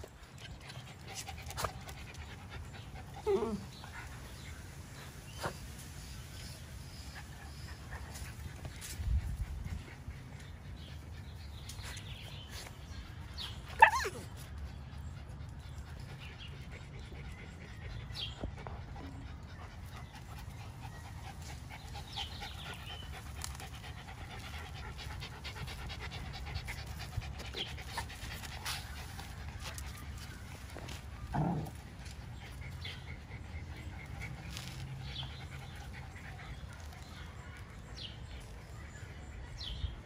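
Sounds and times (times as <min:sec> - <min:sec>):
puppy panting: 0:06.9 - 0:37.3
puppy yelp: 0:13.7 - 0:14.3.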